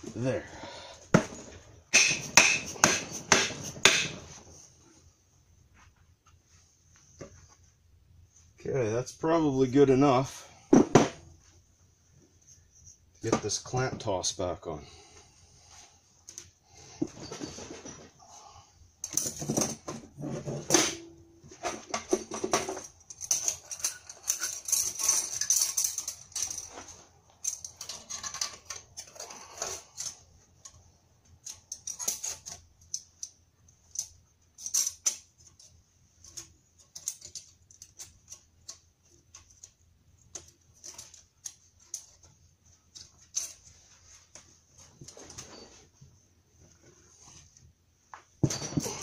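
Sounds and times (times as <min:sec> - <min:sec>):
metal clicking and clinking: 0:21.9 - 0:30.8, 0:31.4 - 0:42.3.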